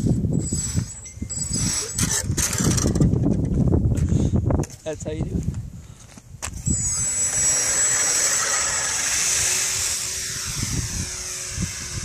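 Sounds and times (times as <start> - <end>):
model plane motor whining: 0.4 - 3.1, 6.6 - 12.0.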